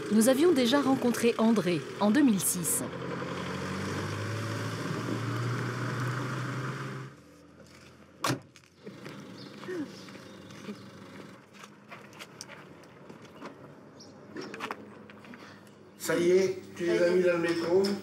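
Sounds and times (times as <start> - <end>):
vehicle engine hum: 0.0 - 17.5.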